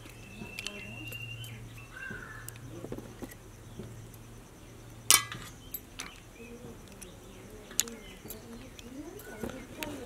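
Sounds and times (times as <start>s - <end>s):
faint clicks: 0.0s - 4.3s, 5.4s - 10.0s
clink in a metal bowl: 5.1s - 6.2s.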